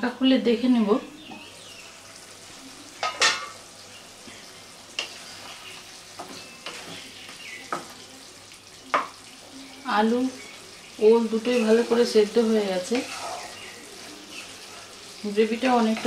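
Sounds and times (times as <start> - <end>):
soft sizzle: 0.0 - 16.0
wooden spatula stirring curry: 12.9 - 15.2.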